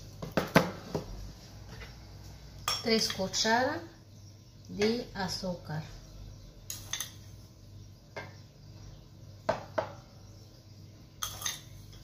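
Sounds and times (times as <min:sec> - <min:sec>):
metal teaspoon clinking: 0:11.2 - 0:11.8.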